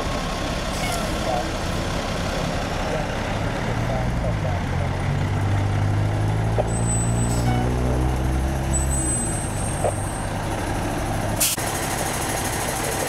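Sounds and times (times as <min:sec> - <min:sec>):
diesel engine idling: 0:00.0 - 0:06.6, 0:09.3 - 0:13.0.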